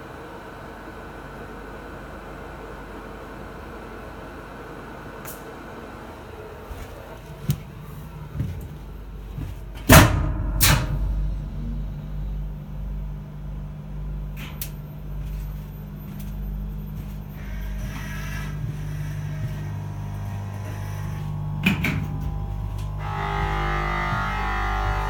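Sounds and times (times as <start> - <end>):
machinery hum and rumble: 0.0 - 25.0
faint high whine: 11.0 - 25.0.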